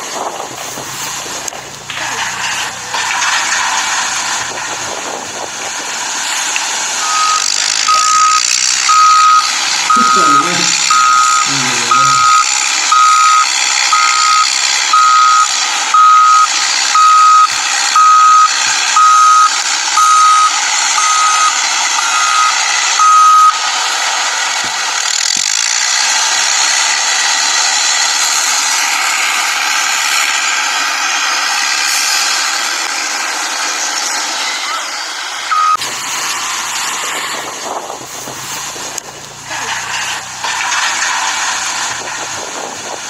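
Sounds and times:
high warning beeps: 7.0 - 23.6, 35.5 - 35.8.

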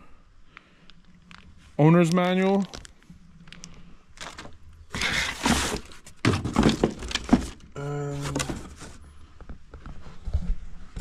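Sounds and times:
items knocking: 4.2 - 9.0
cardboard box and plastic rustling: 4.2 - 11.0.

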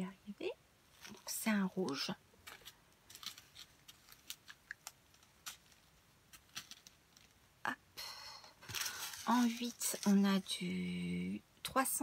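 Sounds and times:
plastic sachets clicking and crinkling: 1.0 - 7.4, 8.6 - 10.6.

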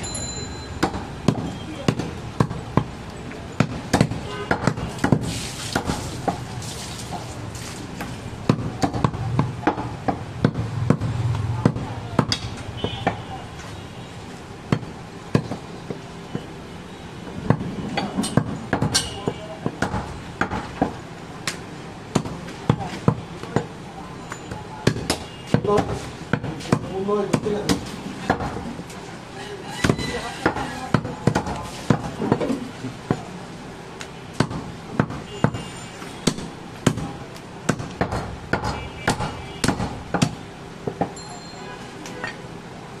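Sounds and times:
knife chopping meat on wood: 3.6 - 6.5, 34.4 - 35.6, 37.7 - 40.4
cleaver chopping on wood block: 37.7 - 41.1.

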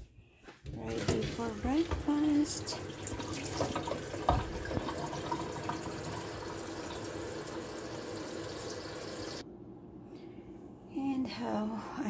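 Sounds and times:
tap water running into kettle: 0.9 - 9.4.

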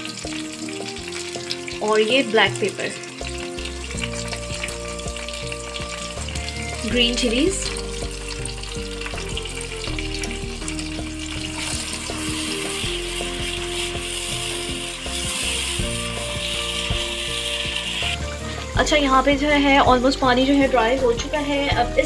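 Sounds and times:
food sizzling in oil: 0.0 - 22.0
spatula stirring and scraping: 10.9 - 18.6.

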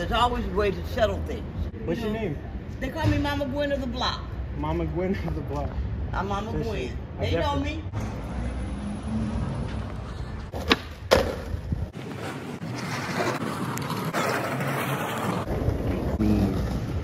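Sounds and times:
skateboard wheels rolling on asphalt: 8.0 - 17.0
skateboard clacks: 10.5 - 17.0.

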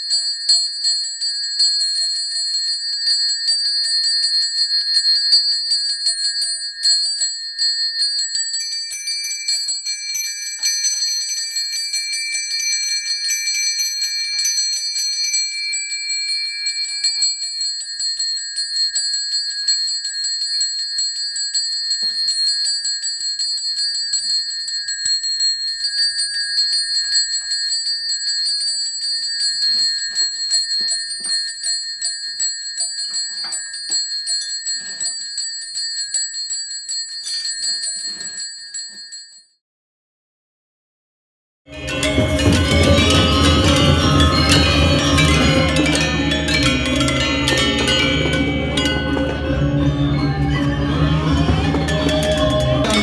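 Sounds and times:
hand bells ringing rapidly: 0.0 - 38.8, 41.7 - 53.0
second bell tone: 41.7 - 53.0.

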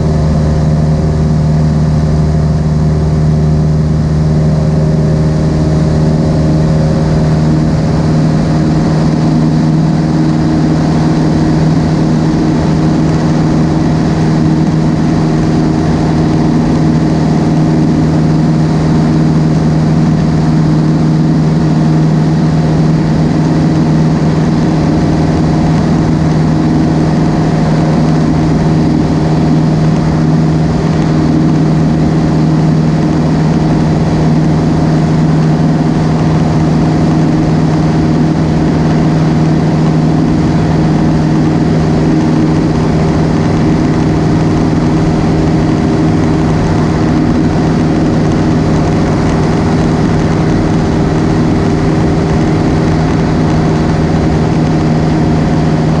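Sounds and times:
airplane engine droning in cabin: 0.0 - 56.0.

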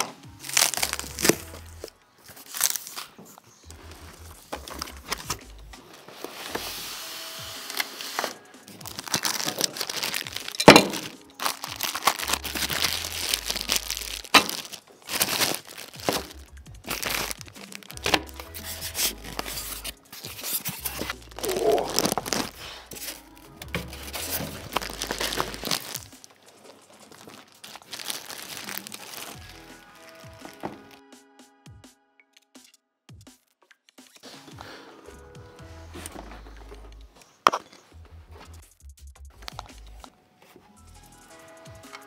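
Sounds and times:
plastic bags crinkling: 0.0 - 6.7, 7.6 - 31.0
styrofoam creaking and scraping: 0.0 - 31.0, 35.6 - 38.6
sharp crack: 8.2 - 26.7.

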